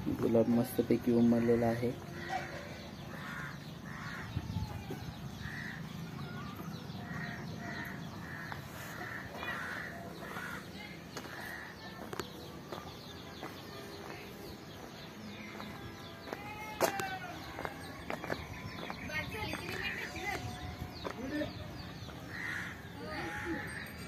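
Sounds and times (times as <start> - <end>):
bird harsh calls: 5.4 - 11.9, 21.5 - 24.0.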